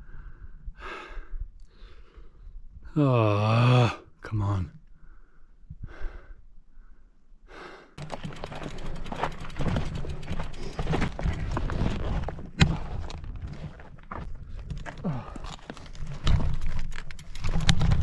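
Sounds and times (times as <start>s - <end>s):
bike rattling over gravel: 8.0s - 18.0s
small clicks: 15.5s - 18.0s.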